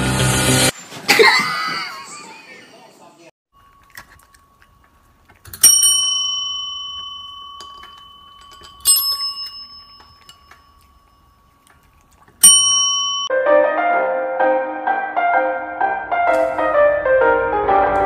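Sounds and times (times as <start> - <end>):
service bell dings: 5.5 - 11.5, 12.4 - 13.3.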